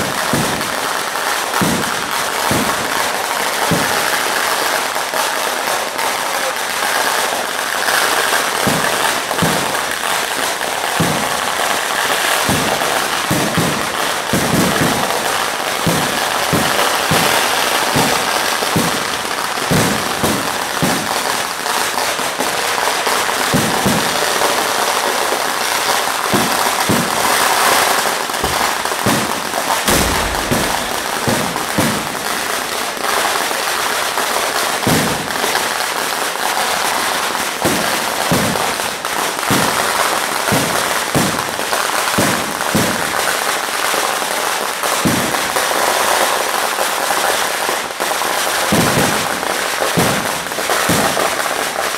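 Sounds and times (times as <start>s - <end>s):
firecracker bangs and crackling: 0.0s - 51.9s
deep firework boom: 28.4s - 32.7s.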